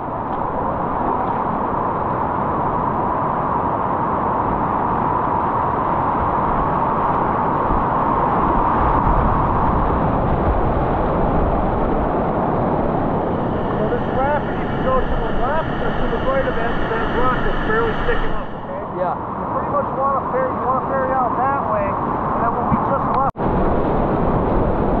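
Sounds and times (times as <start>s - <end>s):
whitewater rushing: 11.3s - 18.7s.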